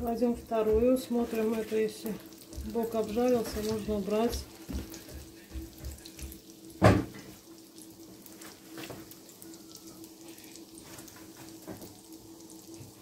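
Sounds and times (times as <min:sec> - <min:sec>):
food frying in hot oil: 0:00.0 - 0:13.0
knock: 0:06.8 - 0:07.2.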